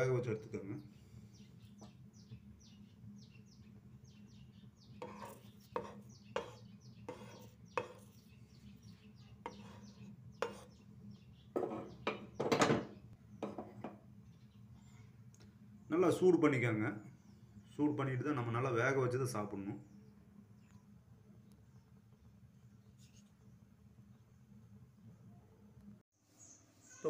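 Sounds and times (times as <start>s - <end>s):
faint bird chirps: 26.3s - 27.0s.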